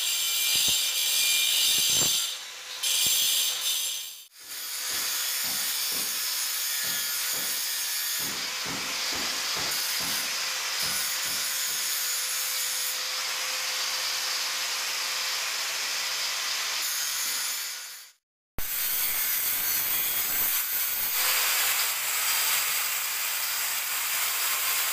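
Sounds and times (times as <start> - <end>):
angle grinder grinding stone: 0.0 - 8.3.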